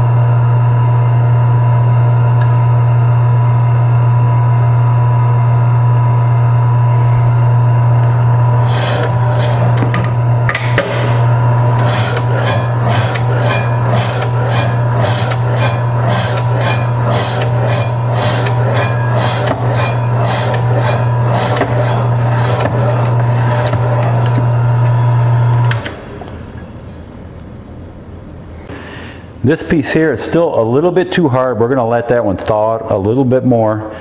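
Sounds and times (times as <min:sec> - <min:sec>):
meat slicer motor hum: 0:00.0 - 0:26.7
blade rasping through meat: 0:08.6 - 0:09.8, 0:11.8 - 0:24.6.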